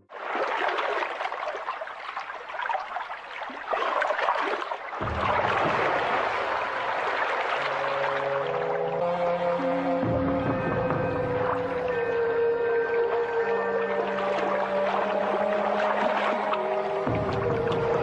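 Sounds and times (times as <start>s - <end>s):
river water splashing and lapping: 0.0s - 18.0s
deeper rumble: 5.0s - 7.5s, 8.6s - 15.9s.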